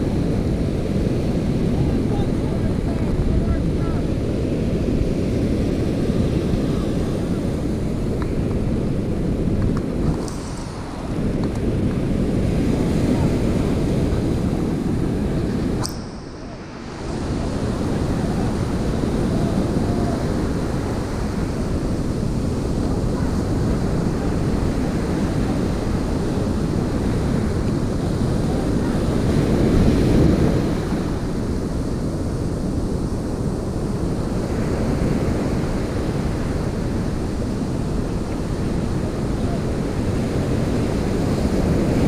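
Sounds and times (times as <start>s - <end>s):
wind buffeting microphone: 0.0s - 42.0s
sharp click: 15.8s - 16.6s.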